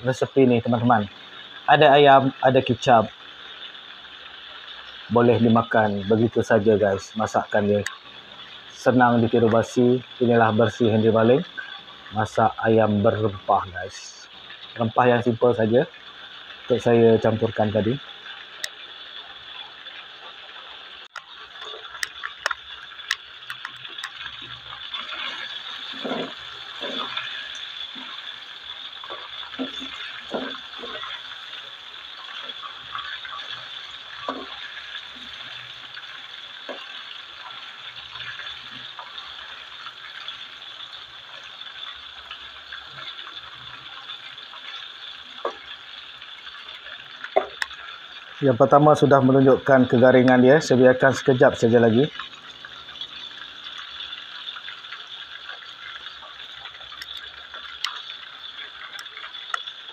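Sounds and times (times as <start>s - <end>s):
chicken deep-frying in oil: 0.0s - 59.9s
spatula scraping a wok: 25.0s - 31.3s.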